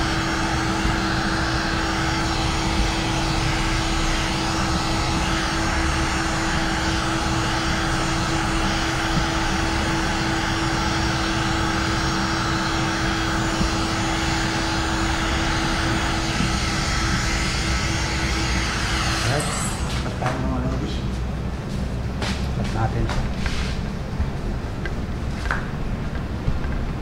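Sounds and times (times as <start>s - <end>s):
heat gun hum: 0.0s - 20.7s
heat gun fan whirring: 0.0s - 27.0s.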